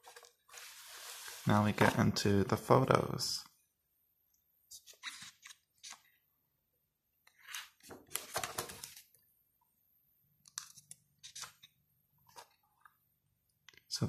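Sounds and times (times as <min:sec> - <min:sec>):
book pages rustling: 0:00.0 - 0:02.1, 0:07.3 - 0:09.2, 0:10.5 - 0:13.0.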